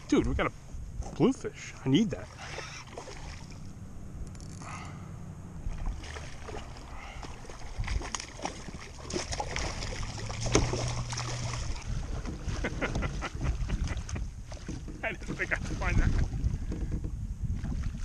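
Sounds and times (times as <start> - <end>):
low hum: 0.0 - 17.4
fish and fishing gear rattling: 1.0 - 17.2
wind on microphone: 9.6 - 18.0.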